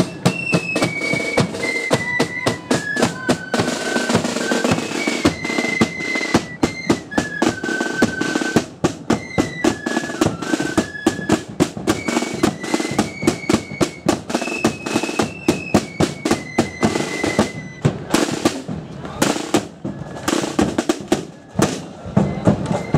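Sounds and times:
flutes playing melody: 0.0s - 18.5s, 19.3s - 22.9s
snare drum beats: 0.0s - 22.9s.

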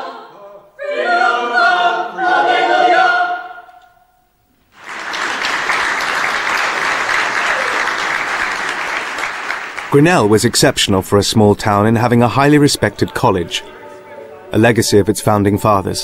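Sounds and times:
choir singing: 0.0s - 4.0s, 11.7s - 16.0s
applause: 4.7s - 10.3s.

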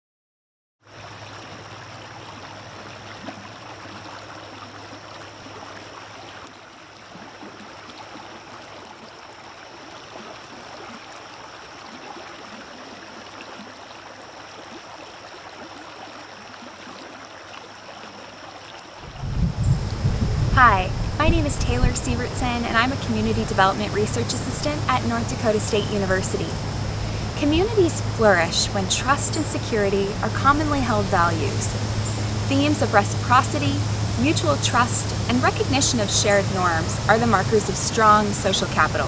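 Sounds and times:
water rushing around rock: 0.9s - 39.0s
high-pitched whine: 19.0s - 39.0s.

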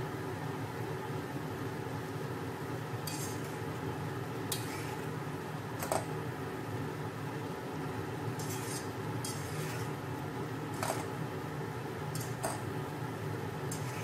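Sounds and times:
steady low hum: 0.0s - 14.0s
forks scraping metal pot: 3.1s - 3.6s, 4.5s - 5.1s, 8.4s - 10.0s, 10.7s - 11.1s, 12.2s - 12.6s, 13.7s - 14.0s.

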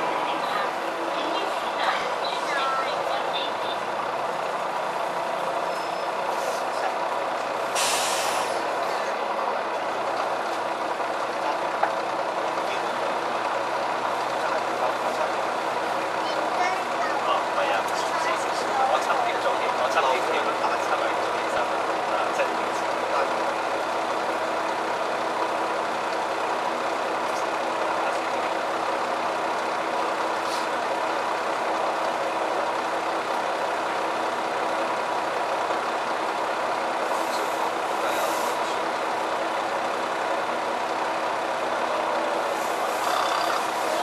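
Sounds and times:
bus engine droning: 0.0s - 44.0s
short air hiss: 7.7s - 8.6s.

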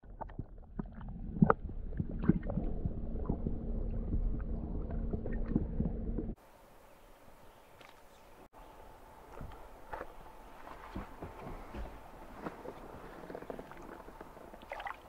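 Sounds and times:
low underwater rumble: 0.0s - 6.4s
steady low hum: 0.8s - 14.9s.

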